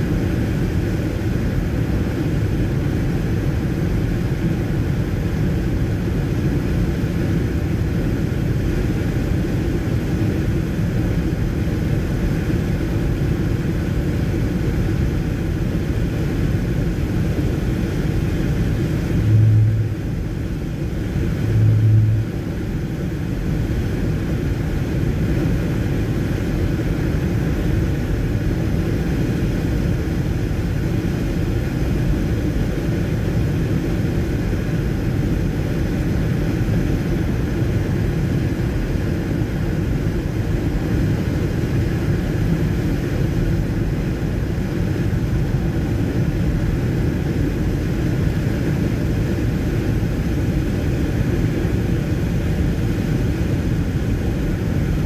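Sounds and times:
car road noise on wet road: 0.0s - 55.0s
short low buzzes: 18.7s - 23.8s.

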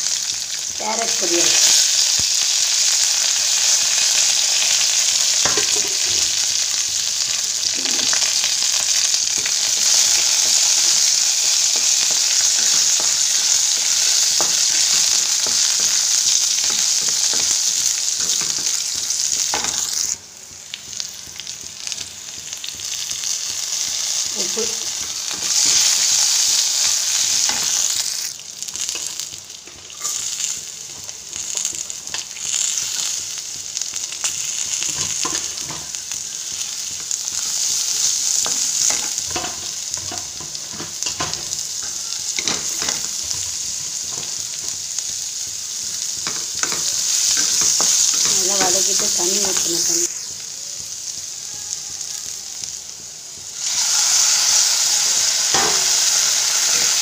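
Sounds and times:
oil sizzling in a pan: 0.0s - 57.0s.

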